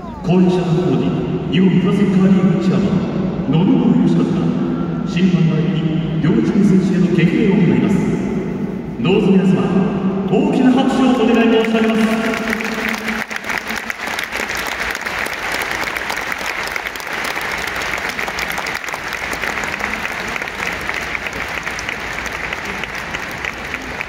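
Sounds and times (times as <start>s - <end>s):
stadium crowd applauding: 11.2s - 24.0s.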